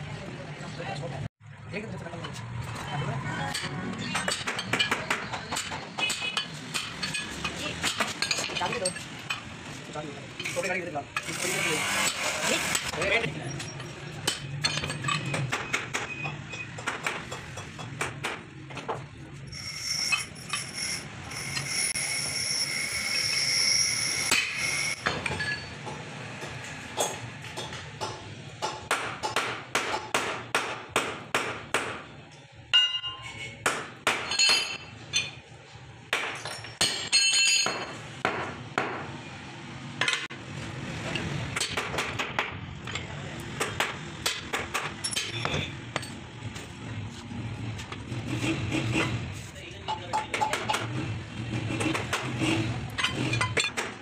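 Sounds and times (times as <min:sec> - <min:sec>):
ringing metallic tone: 0:19.5 - 0:25.8, 0:32.7 - 0:33.5
hammer striking steel: 0:19.5 - 0:32.1, 0:32.7 - 0:34.9.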